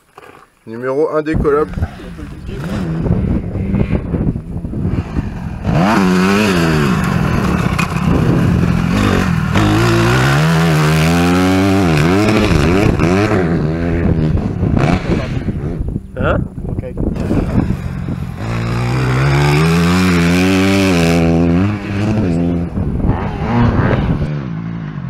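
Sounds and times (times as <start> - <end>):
dirt bike engine revving: 1.9 - 16.0, 17.0 - 24.9.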